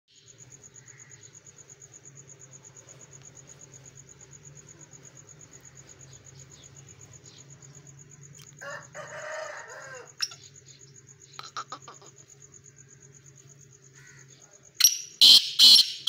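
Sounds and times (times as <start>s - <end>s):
cricket chirping: 0.1s - 16.0s
faint low hum: 0.2s - 14.8s.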